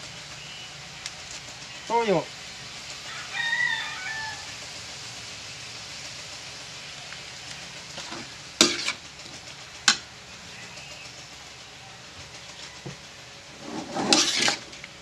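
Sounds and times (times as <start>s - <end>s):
snails sizzling in a wok: 0.0s - 15.0s
metal ladle clanking on wok: 8.6s - 9.0s.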